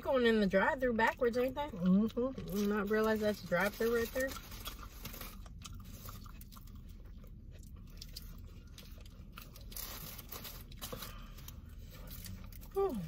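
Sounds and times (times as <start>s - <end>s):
chewing and crunching food: 1.0s - 13.0s
foil wrappers crinkling: 2.5s - 6.6s, 8.0s - 13.0s.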